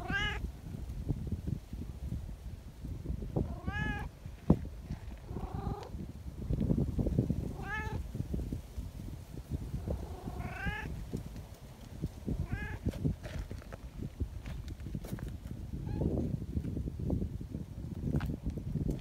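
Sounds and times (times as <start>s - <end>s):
cats meowing: 0.0s - 0.4s, 3.6s - 4.1s
soft rustling: 11.0s - 15.6s.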